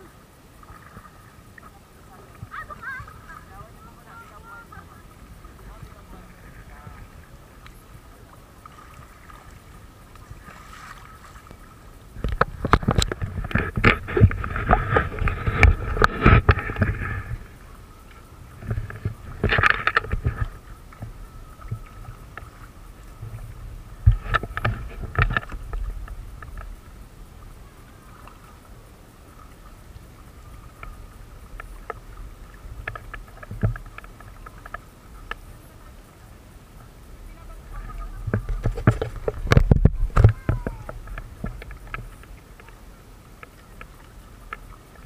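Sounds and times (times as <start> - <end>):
low steady rumble: 0.0 - 45.0
paddles splashing in water: 0.0 - 45.0
small clicks and knocks: 12.2 - 17.4, 18.6 - 22.5, 23.2 - 26.8, 32.7 - 35.5, 38.3 - 42.8.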